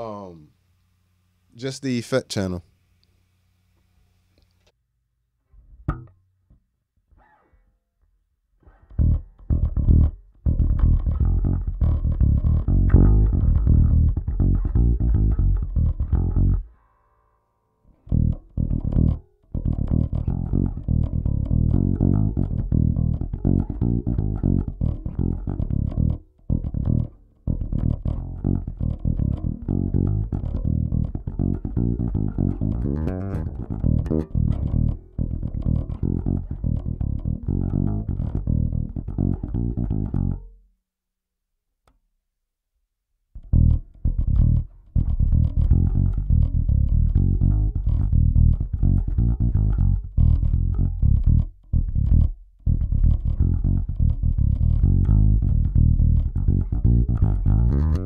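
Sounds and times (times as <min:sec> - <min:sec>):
plucked electric bass: 0:05.7 - 0:06.2, 0:08.7 - 0:16.8, 0:17.9 - 0:40.6, 0:43.4 - 0:58.0.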